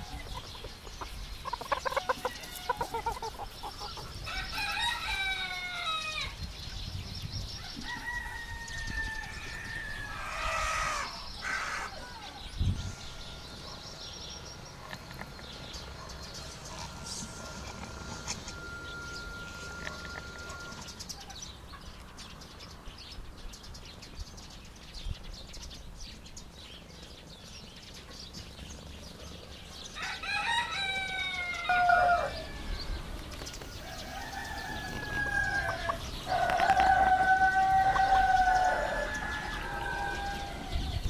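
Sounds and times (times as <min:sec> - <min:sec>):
rooster crowing: 0:04.3 - 0:06.4, 0:07.6 - 0:12.4, 0:16.9 - 0:20.9, 0:30.0 - 0:33.1, 0:33.8 - 0:41.0.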